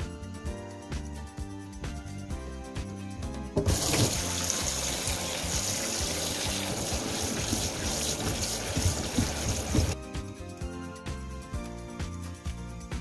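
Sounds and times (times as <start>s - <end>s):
tap water splashing into sink: 3.6s - 10.0s.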